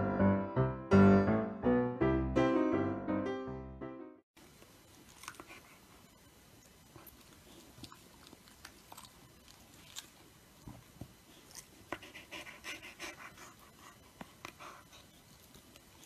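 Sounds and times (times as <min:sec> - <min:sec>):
dog panting: 0:11.3 - 0:16.0.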